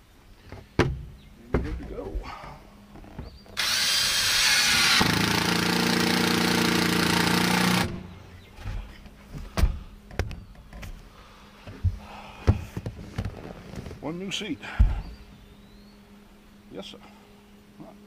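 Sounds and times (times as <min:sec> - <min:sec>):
knocks and thumps: 0:00.5 - 0:02.0, 0:11.6 - 0:13.9
cordless drill whirring: 0:03.6 - 0:08.0.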